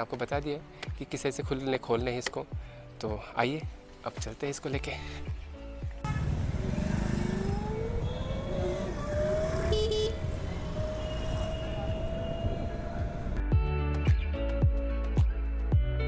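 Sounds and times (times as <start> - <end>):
wind: 0.0 - 15.7
road rumble: 5.1 - 13.5
vehicle horn toot: 6.0 - 6.5, 9.7 - 10.3
electric scooter motor whine: 6.6 - 13.4.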